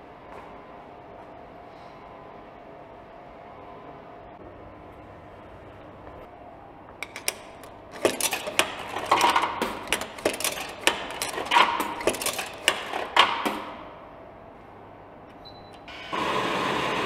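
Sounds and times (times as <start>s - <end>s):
coins clinking into slot: 7.0s - 13.7s
vending machine running: 7.0s - 17.0s.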